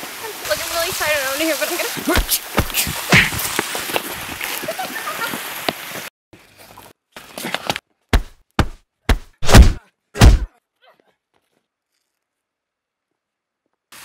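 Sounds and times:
punch and kick thuds: 2.2 - 3.4, 8.1 - 10.5.

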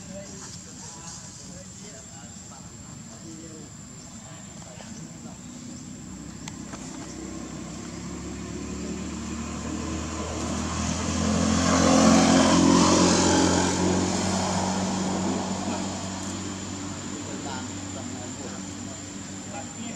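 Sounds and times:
motor vehicle passing by: 4.9 - 19.9.

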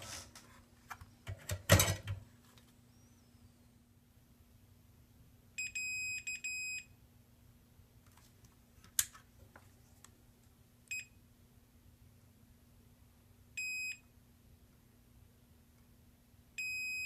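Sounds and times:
multimeter beeping: 5.6 - 6.9, 13.6 - 14.0, 16.6 - 17.0.

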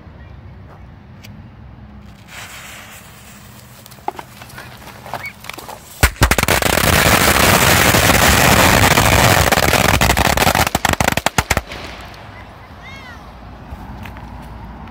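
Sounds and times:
firecrackers going off: 2.0 - 12.4.

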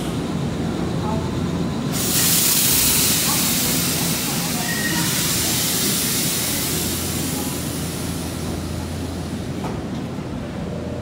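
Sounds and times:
low train hum: 0.0 - 11.0
train running gear hiss: 1.9 - 9.8.

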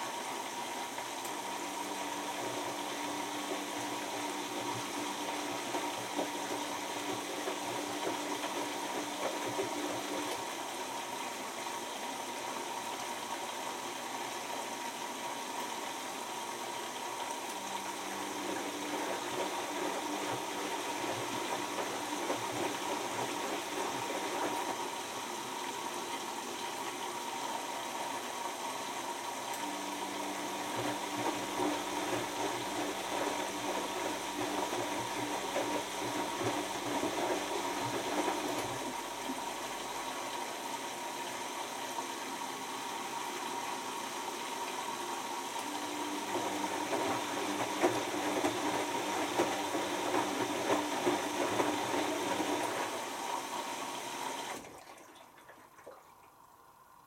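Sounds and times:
washing machine motor humming: 0.0 - 57.0
water sloshing in drum: 0.4 - 11.6, 17.1 - 27.1, 29.2 - 41.5, 45.6 - 56.4.

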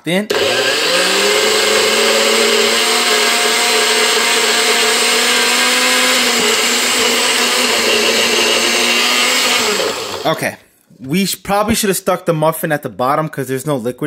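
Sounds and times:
blender motor running: 0.3 - 10.4.

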